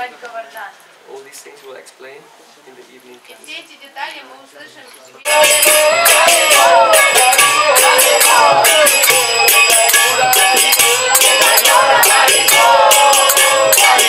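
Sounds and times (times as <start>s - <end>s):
hand cymbals clashing: 5.3s - 14.0s.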